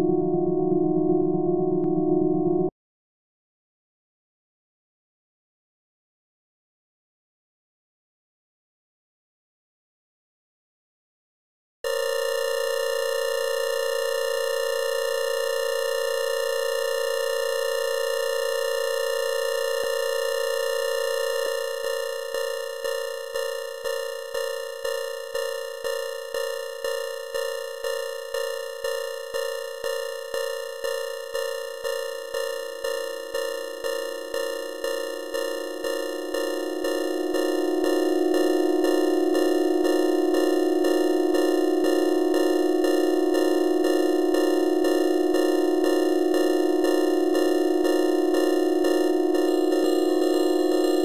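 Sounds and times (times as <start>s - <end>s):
lower synthesized tone: 0.0s - 2.7s, 35.5s - 51.0s
pulsing synthesized tone: 0.0s - 2.7s, 34.5s - 51.0s.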